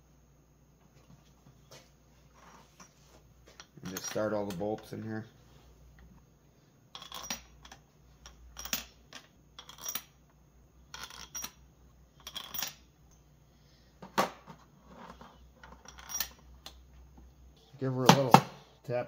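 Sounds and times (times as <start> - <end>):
bolts clinking against metal: 3.5 - 5.0, 7.0 - 10.2, 15.6 - 16.8.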